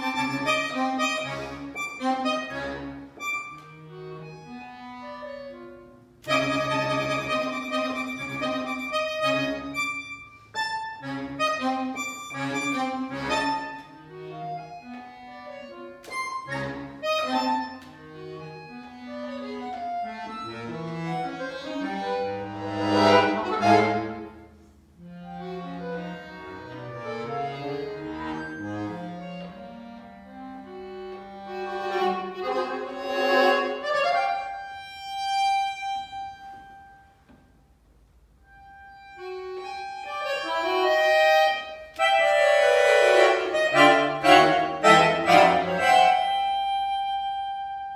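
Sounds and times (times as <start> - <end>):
solo accordion playing: 0.0 - 47.9.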